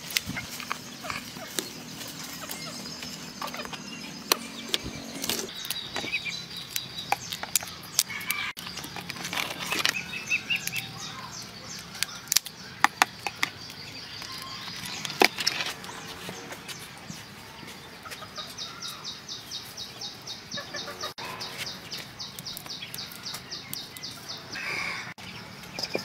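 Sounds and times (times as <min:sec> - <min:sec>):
faint birds chirping: 0:00.0 - 0:26.0
crab shells cracking: 0:05.2 - 0:15.8, 0:22.2 - 0:24.2.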